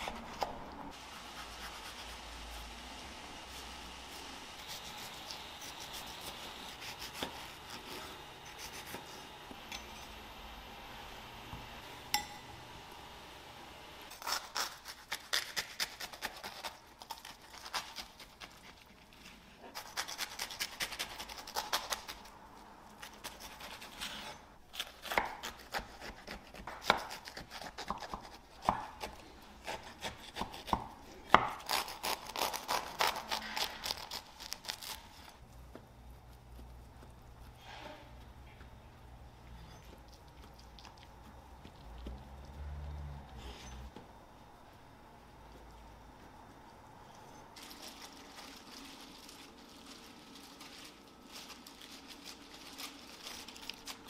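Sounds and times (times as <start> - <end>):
knife sawing through toasted bread: 1.0 - 2.7, 3.5 - 9.4.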